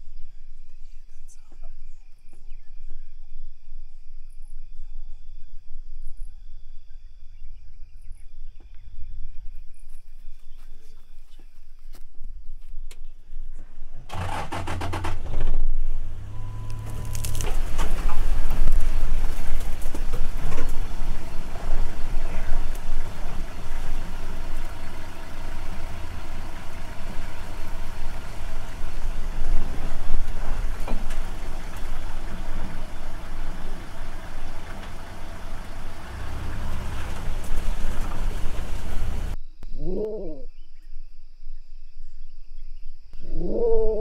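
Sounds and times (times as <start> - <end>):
vehicle engine rumbling: 8.5 - 39.4
knocks and rattles: 14.0 - 39.4
animal growl: 39.8 - 40.5, 43.2 - 44.0.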